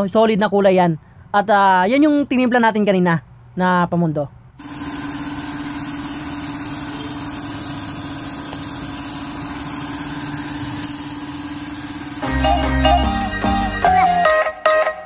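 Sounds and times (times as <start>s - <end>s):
spray gun air hiss: 4.6s - 12.6s
air compressor humming: 4.6s - 13.0s
music: 12.2s - 15.0s.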